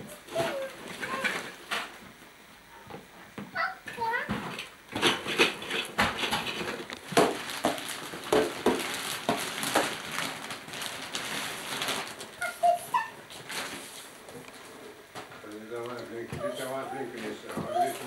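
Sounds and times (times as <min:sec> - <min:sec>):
wrapping paper crinkling: 0:06.6 - 0:18.0
short high voice: 0:12.4 - 0:13.2.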